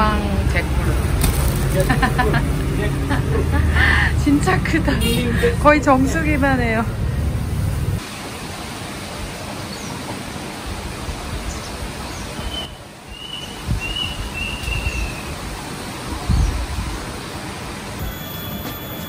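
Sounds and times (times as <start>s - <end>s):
wind rustling through trees: 0.0s - 19.0s
wind buffeting microphone: 10.6s - 18.0s
bird chirping: 11.5s - 15.3s.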